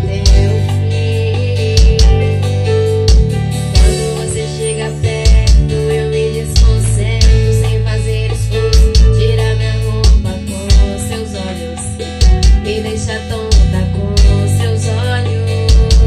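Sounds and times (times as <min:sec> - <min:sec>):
deep bass thumps: 0:00.0 - 0:15.1, 0:15.7 - 0:16.0
recorded music with guitar: 0:00.0 - 0:16.0.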